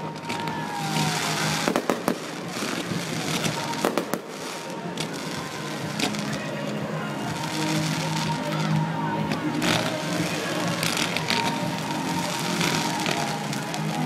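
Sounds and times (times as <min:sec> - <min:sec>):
fireworks sparks crackling: 0:00.0 - 0:14.0.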